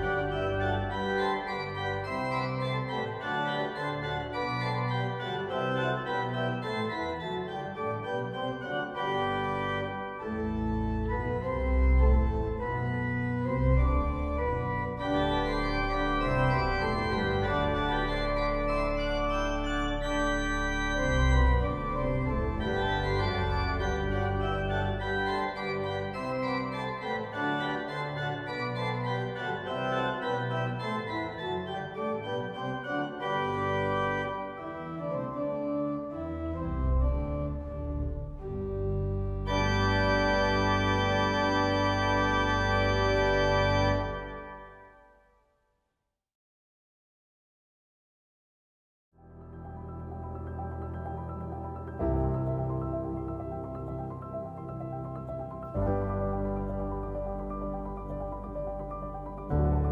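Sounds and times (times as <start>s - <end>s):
deep organ bass pedal notes: 0.0s - 44.8s, 49.3s - 59.9s
organ chords: 0.0s - 45.2s, 49.3s - 59.9s.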